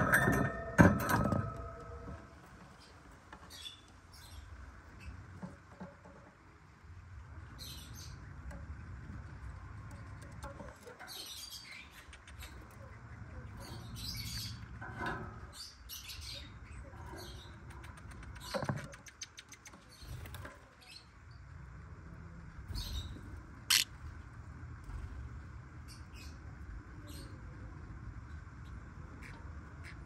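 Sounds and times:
lovebirds chattering and chirping: 0:07.4 - 0:08.5, 0:09.6 - 0:21.3, 0:22.7 - 0:23.9
bird clicks: 0:17.6 - 0:20.0.

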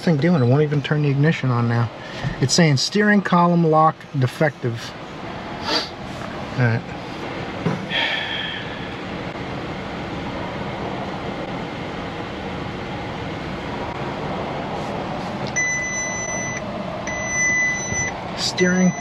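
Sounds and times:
steady rushing noise: 0:04.4 - 0:15.5
electronic warning beeps: 0:15.6 - 0:19.0.

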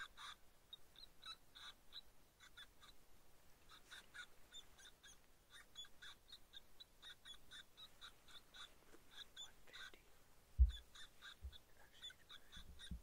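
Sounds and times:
high-pitched chirping calls: 0:00.0 - 0:03.0, 0:03.7 - 0:10.0, 0:10.6 - 0:13.0.

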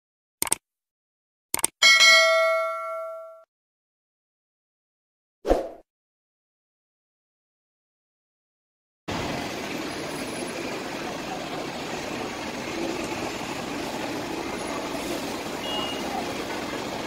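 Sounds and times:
bus engine driving past: 0:09.1 - 0:17.0
street traffic noise: 0:09.1 - 0:17.0.

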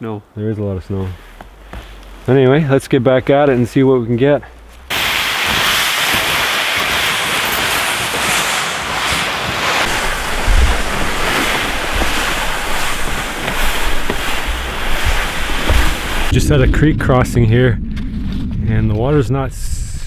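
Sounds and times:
rushing wind: 0:04.8 - 0:20.0
wind buffeting microphone: 0:06.9 - 0:20.0.

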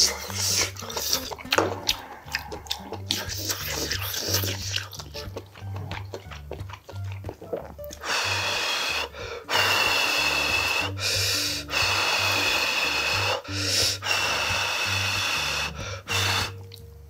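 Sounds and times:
man slurping noodles: 0:00.0 - 0:16.8
quiet background music with beat: 0:00.0 - 0:17.0.

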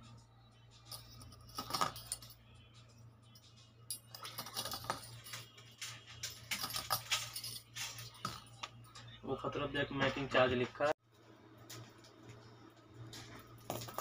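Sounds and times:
coin bangles clinking and jingling: 0:00.6 - 0:09.0, 0:13.4 - 0:14.0.

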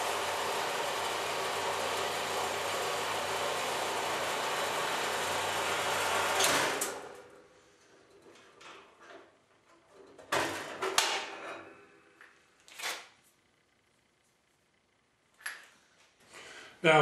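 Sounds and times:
bandsaw cutting metal: 0:00.0 - 0:07.0.

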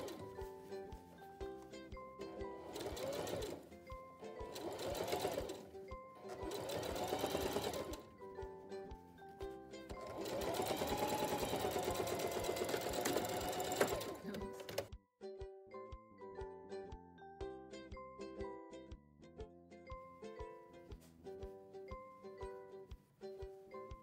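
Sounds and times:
sewing machine stitching: 0:00.0 - 0:00.4, 0:02.5 - 0:08.1, 0:09.9 - 0:14.9
light background music: 0:00.0 - 0:24.0.

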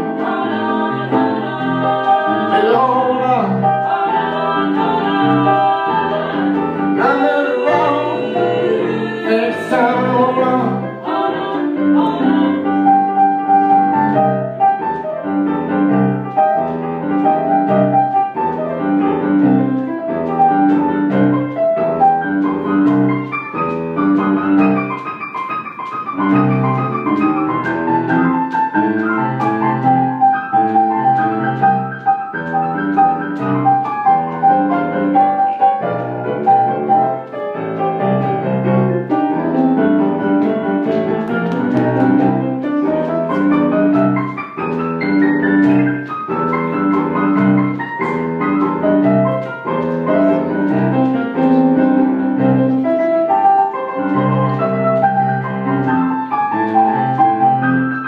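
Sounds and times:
rhythm and blues piano: 0:00.0 - 0:58.0.

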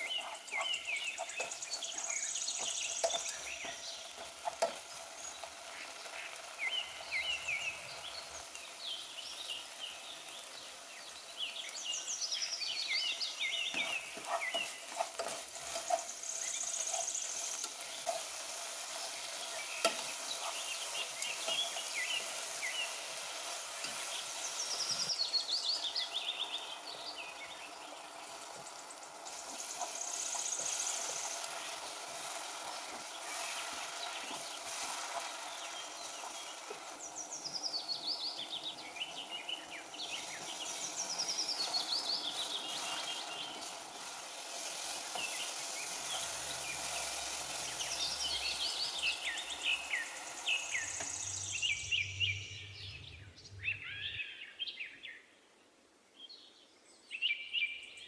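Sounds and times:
spatula scraping a pan: 0:00.0 - 0:07.7, 0:13.6 - 0:25.5, 0:29.2 - 0:37.6, 0:40.0 - 0:51.3
soft sizzle: 0:00.0 - 0:54.4
high chirping: 0:44.9 - 0:54.4.

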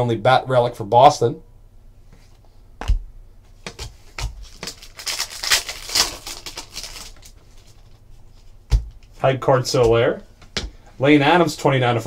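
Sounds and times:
foil wrapper crinkling: 0:04.1 - 0:08.0.

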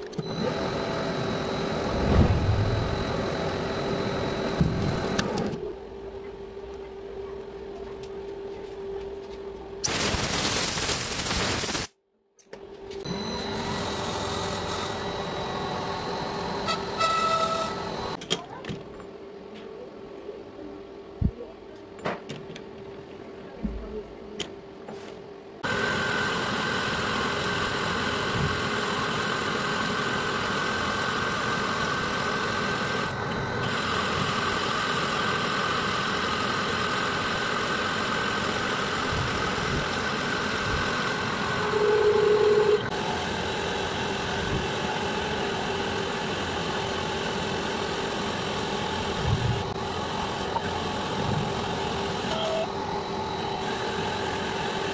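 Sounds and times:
metal lathe whining: 0:13.1 - 0:18.2, 0:25.7 - 0:44.3
loud tone: 0:41.3 - 0:42.9, 0:52.3 - 0:52.8.

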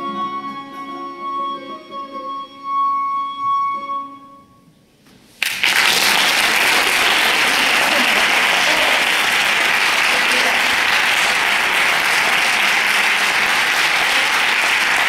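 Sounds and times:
audience applause: 0:05.4 - 0:15.0.

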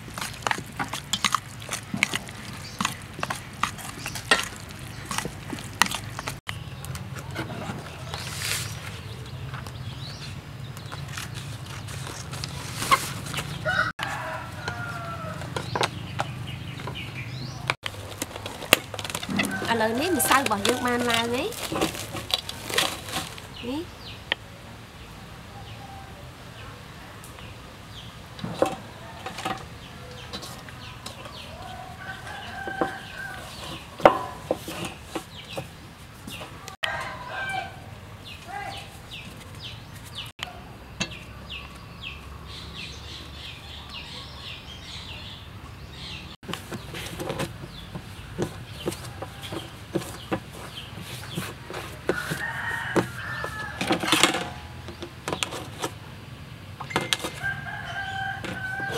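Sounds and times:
rooster crowing: 0:13.6 - 0:15.6, 0:19.3 - 0:21.0, 0:31.4 - 0:33.6, 0:36.8 - 0:38.0, 0:52.1 - 0:54.1, 0:57.3 - 0:58.9.

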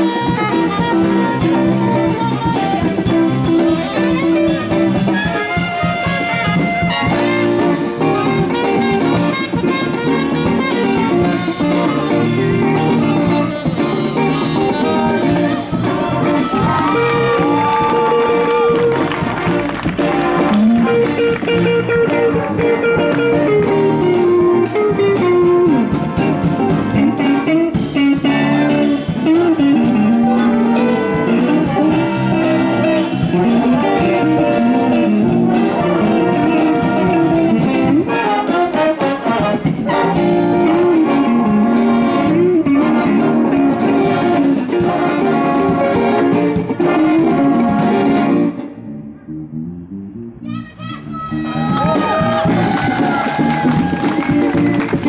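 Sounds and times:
band playing with guitar and brass: 0:00.0 - 0:55.0.

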